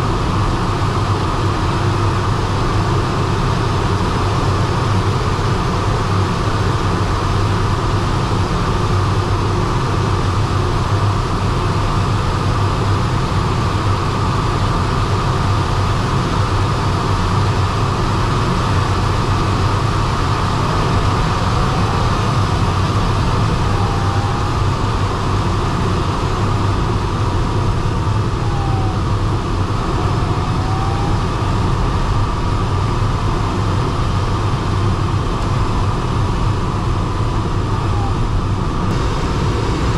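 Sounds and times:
air rushing around cockpit: 0.0s - 39.9s
faint wavering tone: 21.2s - 25.0s.

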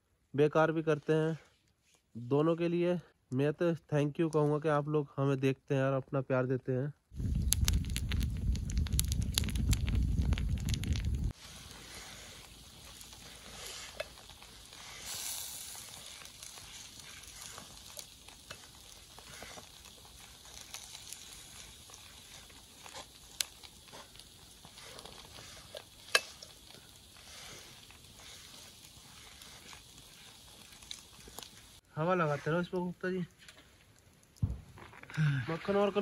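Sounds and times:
coals crackling and popping: 7.0s - 36.0s
food sizzling on charcoal grill: 7.2s - 36.0s
sharp crack: 25.8s - 26.9s.

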